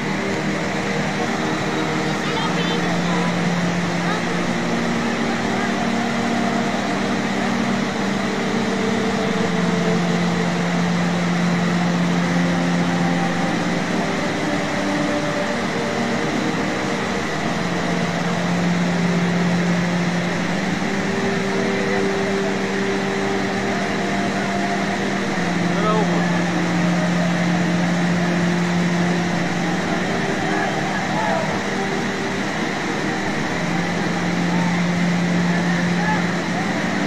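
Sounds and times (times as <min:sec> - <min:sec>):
low humming tones: 0:00.0 - 0:37.0
river rapids roaring: 0:00.0 - 0:37.0.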